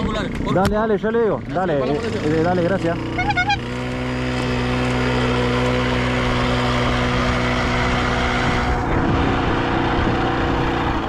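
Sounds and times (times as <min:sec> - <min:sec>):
small motorcycle engine running: 0:01.4 - 0:11.0.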